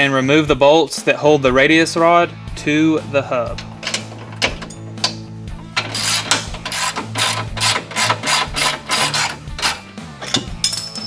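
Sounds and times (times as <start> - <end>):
ratchet wrench clicking: 3.5 - 10.8.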